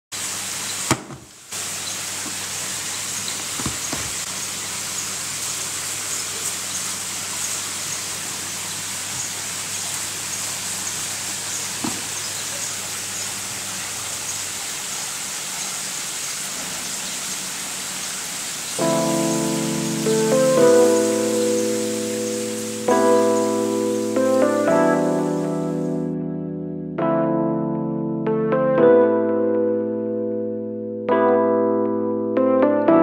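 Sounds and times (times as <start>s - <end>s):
steady background hiss: 0.2s - 26.0s.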